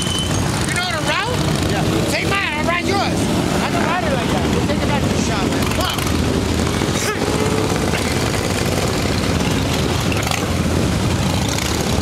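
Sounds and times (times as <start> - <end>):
motorcycles riding past: 0.0 - 12.0.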